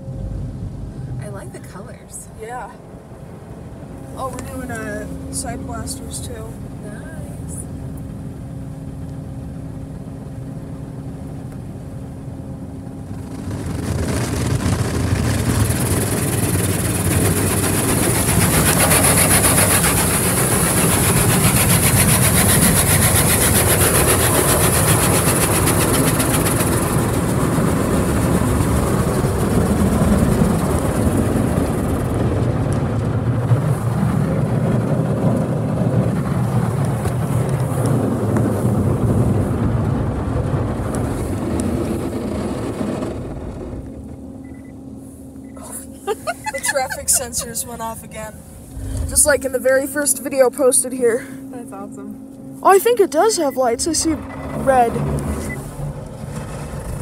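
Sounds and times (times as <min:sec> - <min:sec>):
low hum: 0:00.0 - 0:57.0
wash brushes churning on car: 0:13.0 - 0:43.8, 0:46.0 - 0:51.8, 0:52.6 - 0:57.0.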